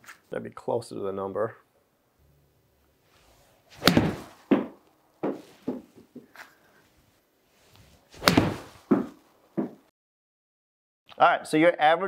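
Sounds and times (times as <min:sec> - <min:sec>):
golf club striking ball: 0:03.8 - 0:05.4, 0:08.2 - 0:09.1
ball smacking screen: 0:03.8 - 0:05.9, 0:08.2 - 0:09.8.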